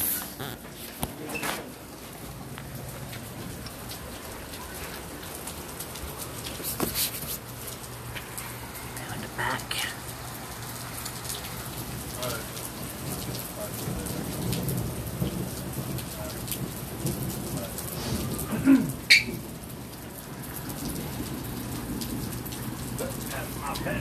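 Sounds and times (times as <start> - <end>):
steady rain: 0.0 - 24.0
low thunder rumble: 11.6 - 23.6.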